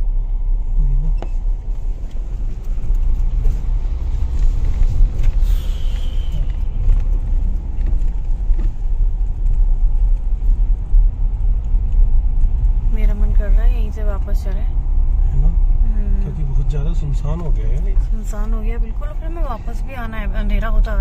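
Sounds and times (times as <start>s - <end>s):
in-cabin engine and tyre drone: 0.0s - 21.0s.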